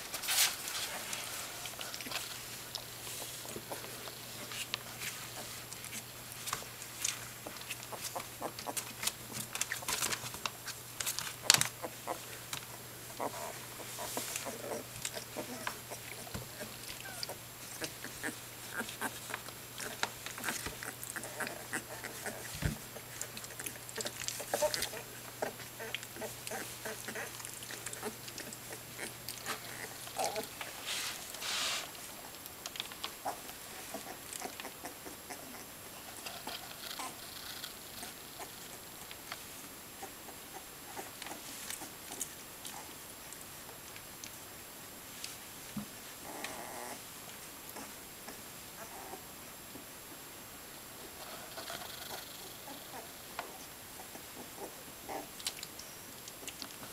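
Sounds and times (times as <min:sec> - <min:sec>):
puppies scrabbling on blanket: 0:00.0 - 0:32.1
rustling: 0:00.0 - 0:50.2
puppy grunt: 0:13.1 - 0:30.8, 0:33.2 - 0:38.9, 0:46.2 - 0:47.0, 0:47.7 - 0:49.3, 0:51.2 - 0:55.4
scuffling on fleece bedding: 0:30.8 - 0:31.9.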